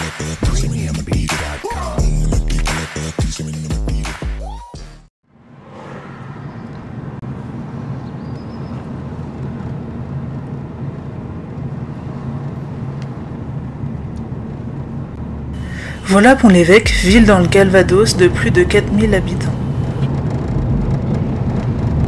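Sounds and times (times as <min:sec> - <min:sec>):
street traffic rumble: 0:05.3 - 0:22.0.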